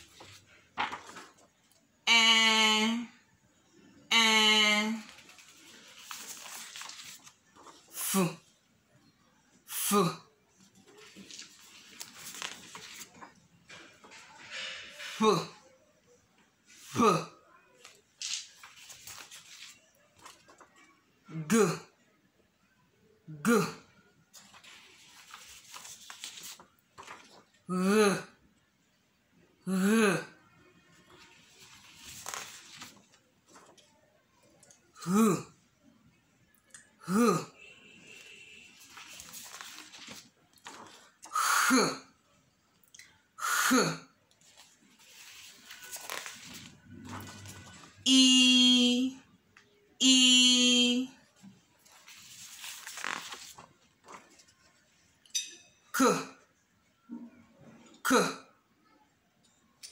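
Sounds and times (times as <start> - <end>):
person spelling letters: 2.0 - 3.2, 4.0 - 6.9, 43.4 - 49.2, 50.0 - 51.2
person saying a syllable: 2.1 - 3.2, 4.1 - 5.2, 7.9 - 8.5, 9.7 - 10.3, 15.2 - 15.8, 16.8 - 17.8, 21.3 - 21.9, 23.3 - 23.8, 27.7 - 28.4, 29.7 - 30.4, 35.0 - 35.6, 37.0 - 37.6, 48.0 - 49.3, 50.0 - 51.2.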